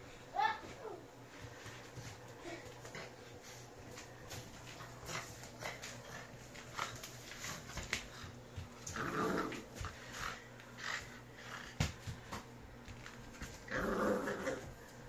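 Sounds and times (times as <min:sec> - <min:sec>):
puppy growling: 0:08.8 - 0:11.6, 0:13.6 - 0:14.8.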